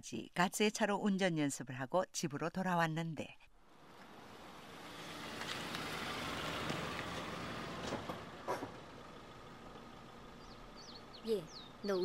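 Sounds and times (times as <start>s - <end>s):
car driving past: 3.6s - 11.8s
birds chirping: 5.1s - 12.0s.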